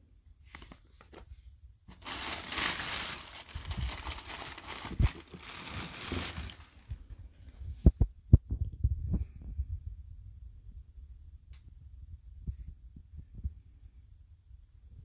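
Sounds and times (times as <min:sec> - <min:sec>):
tissue paper crinkling: 0:00.5 - 0:01.2, 0:01.9 - 0:07.0.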